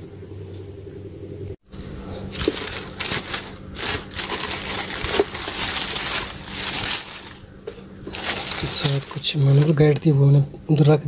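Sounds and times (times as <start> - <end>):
plastic bag crinkling: 2.2 - 10.2.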